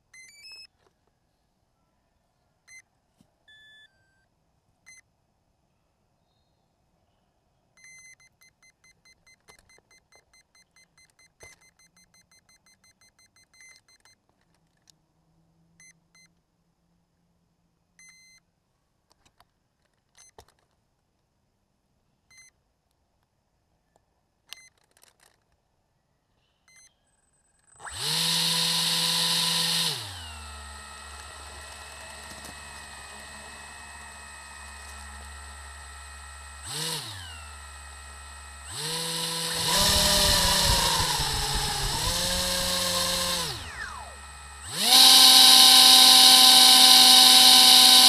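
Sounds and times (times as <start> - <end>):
faint electronic beeps: 2.6 - 5.1, 7.7 - 14.2, 26.4 - 27.8.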